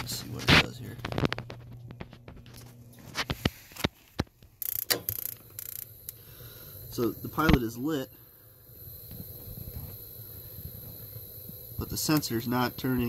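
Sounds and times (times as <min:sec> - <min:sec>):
spark igniter clicking: 0:04.6 - 0:06.2, 0:10.7 - 0:12.5
low hum: 0:05.0 - 0:13.0.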